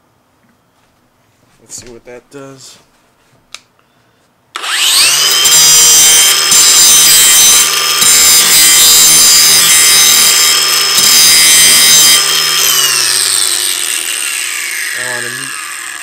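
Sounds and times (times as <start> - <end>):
angle grinder whine: 4.6 - 16.0
grinder grinding steel blade: 4.6 - 16.0.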